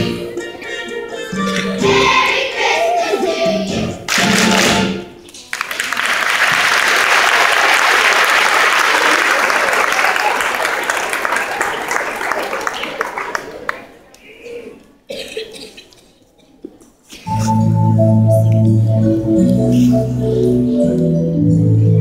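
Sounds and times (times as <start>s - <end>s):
children's choir singing: 0.0s - 5.1s
audience applauding: 5.4s - 14.0s.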